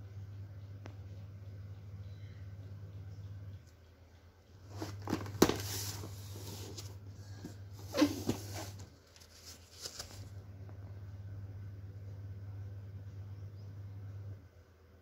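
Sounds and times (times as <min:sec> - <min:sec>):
cardboard box rustling: 0:04.7 - 0:10.3.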